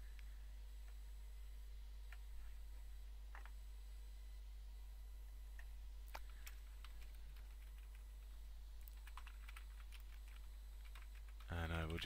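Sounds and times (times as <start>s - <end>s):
steady low hum: 0.0s - 12.0s
computer keyboard typing: 6.1s - 12.0s.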